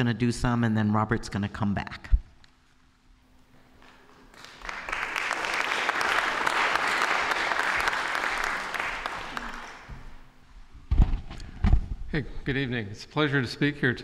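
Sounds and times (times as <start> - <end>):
audience applauding: 4.1 - 10.3.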